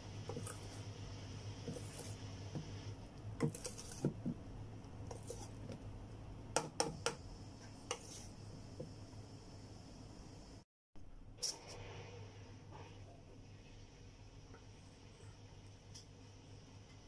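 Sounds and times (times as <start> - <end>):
whisk stirring thick batter: 0.0 - 6.0, 7.6 - 8.5.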